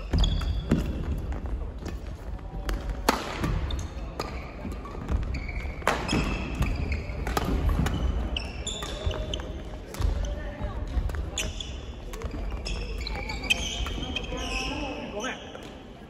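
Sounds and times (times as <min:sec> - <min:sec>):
sneakers squeaking on wooden floor: 0:00.0 - 0:02.1, 0:03.4 - 0:15.6
racket striking shuttlecock: 0:05.8 - 0:08.0.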